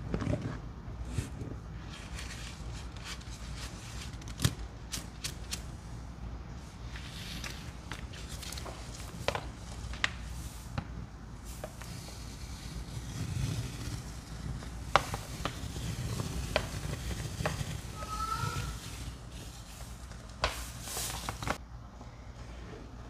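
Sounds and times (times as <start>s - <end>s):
soapy paste being stirred: 11.4s - 21.6s.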